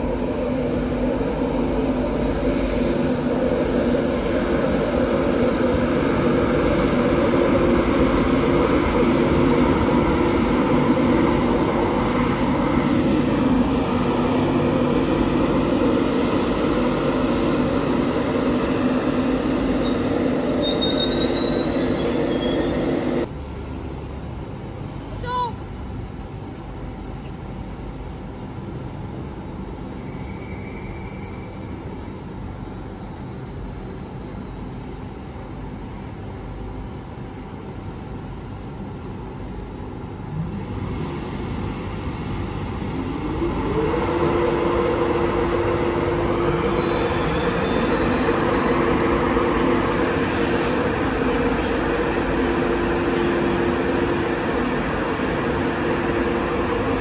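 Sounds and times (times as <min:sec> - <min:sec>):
rising motor whine: 0:00.0 - 0:23.3, 0:40.3 - 0:57.0
electric locomotive running: 0:00.0 - 0:57.0
air hiss: 0:49.8 - 0:51.2.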